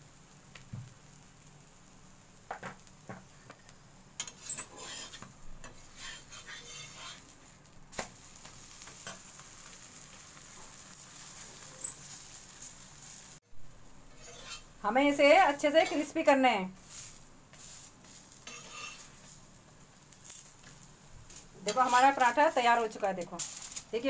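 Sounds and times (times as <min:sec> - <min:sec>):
flatbread sizzling in oil: 0:00.0 - 0:24.0
metal spatula scraping griddle: 0:04.2 - 0:07.6, 0:14.1 - 0:14.8, 0:15.4 - 0:16.2, 0:16.8 - 0:19.6, 0:21.3 - 0:22.8.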